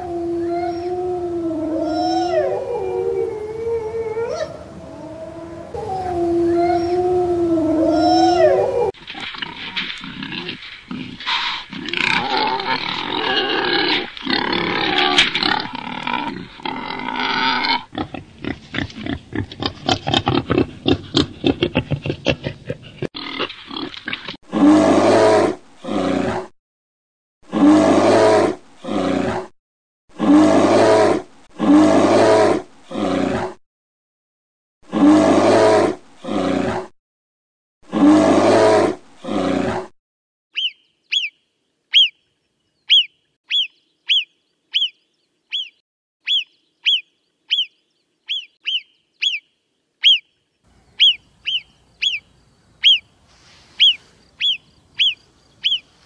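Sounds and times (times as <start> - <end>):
bear growling roars: 24.5 - 26.5, 27.4 - 29.5, 30.1 - 33.6, 34.8 - 36.9, 37.8 - 39.9
marmot alarm whistles: 40.6 - 42.2, 42.9 - 47.7, 48.3 - 49.4, 50.0 - 50.2, 51.0 - 52.2, 52.8 - 53.0, 53.8 - 55.8.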